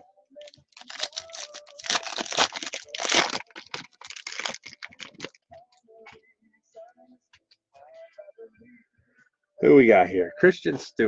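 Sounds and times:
foil wrapper crinkling and tearing: 0.4 - 5.4.

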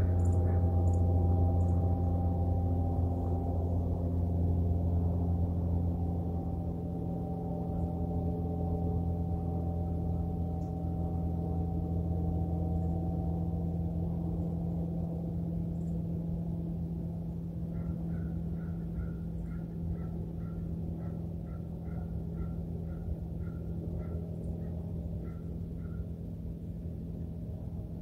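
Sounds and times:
low hum: 0.0 - 28.0
bird calling: 17.7 - 26.1.

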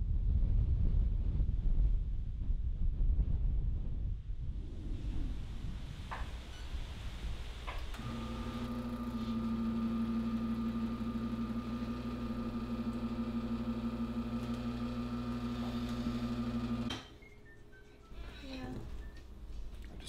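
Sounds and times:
espresso machine pump humming: 7.9 - 17.0.

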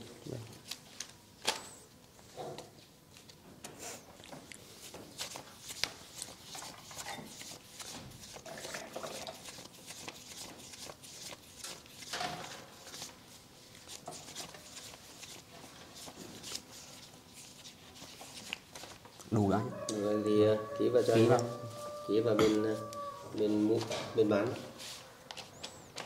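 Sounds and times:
banknotes being counted: 9.4 - 12.1.

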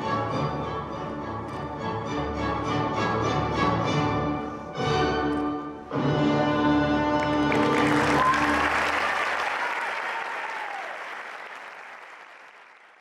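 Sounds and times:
orchestral music: 0.0 - 8.8
audience applause: 7.2 - 13.0.

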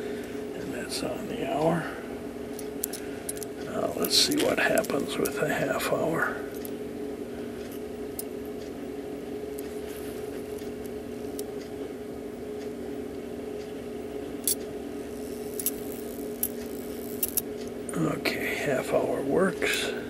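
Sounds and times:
steady low hum: 0.0 - 20.0
clock mechanism sharp clicks: 2.5 - 5.8, 14.4 - 17.8.

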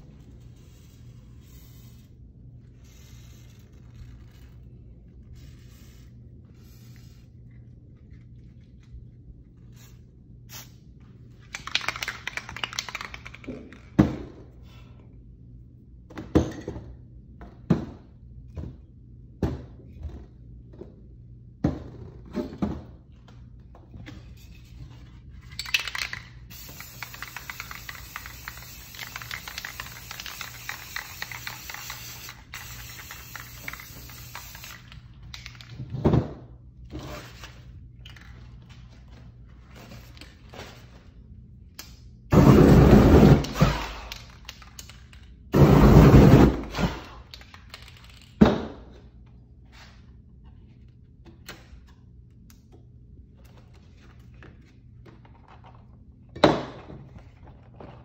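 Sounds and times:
spray paint can hissing: 0.6 - 2.2, 2.8 - 4.5, 5.3 - 7.4, 9.7 - 10.8, 25.9 - 35.0.

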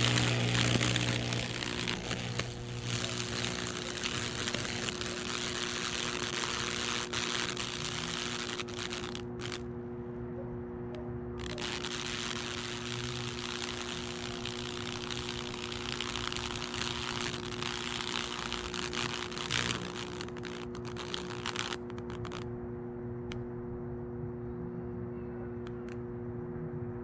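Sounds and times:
electric arc crackling and sizzling: 0.0 - 9.7, 11.4 - 22.4
electrical hum: 0.0 - 27.0.

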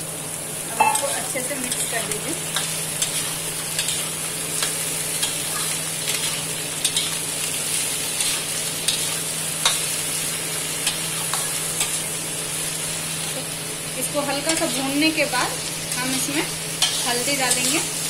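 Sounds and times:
vegetables sizzling in oil: 0.0 - 18.0.

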